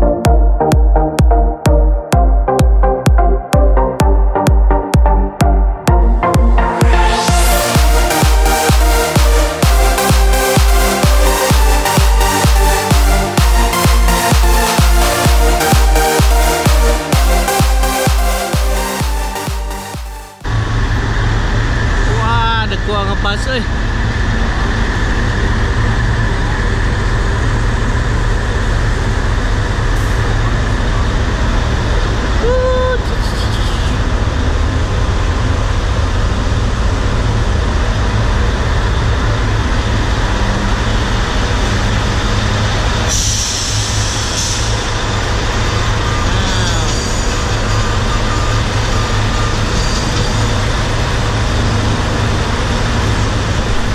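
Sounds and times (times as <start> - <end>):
diesel buses idling: 0.0 - 53.9
air brake hiss: 43.1 - 44.9.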